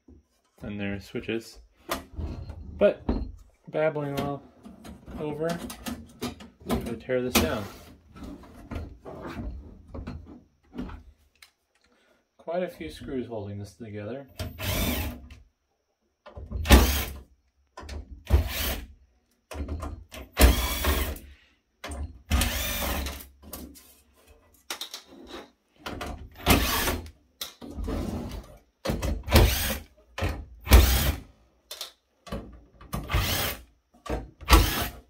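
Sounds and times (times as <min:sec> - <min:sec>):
cordless drill motor bursts: 0:14.5 - 0:15.2, 0:16.7 - 0:17.2, 0:20.4 - 0:21.2, 0:22.3 - 0:23.1, 0:26.5 - 0:27.0, 0:29.3 - 0:29.8, 0:30.7 - 0:31.2, 0:33.1 - 0:33.6, 0:34.4 - 0:35.0.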